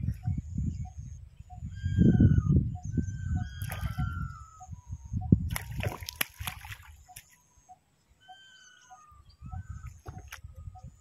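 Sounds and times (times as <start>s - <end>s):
birds whistling: 0.0s - 5.4s, 7.0s - 11.0s
water splashing in a stream: 3.6s - 4.1s, 5.5s - 7.4s
soft repeating bird call: 7.1s - 10.2s.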